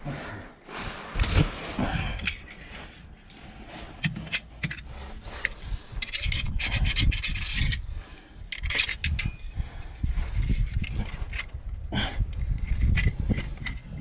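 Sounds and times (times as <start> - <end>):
wind rumble on microphone: 4.9 - 14.0.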